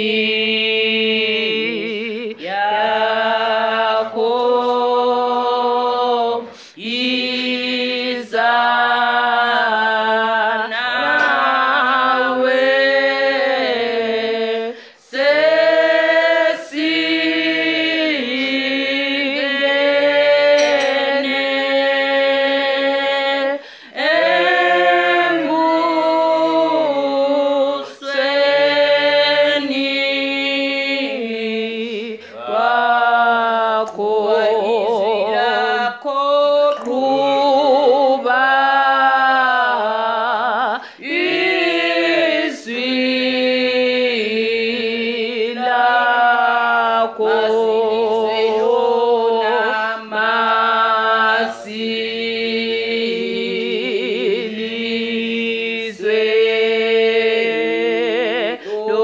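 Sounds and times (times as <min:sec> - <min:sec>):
unaccompanied hymn singing: 0:00.0 - 0:59.0
singers breathing: 0:06.5 - 0:06.8, 0:14.7 - 0:15.1, 0:23.6 - 0:24.0, 0:40.8 - 0:41.1, 0:58.6 - 0:58.9.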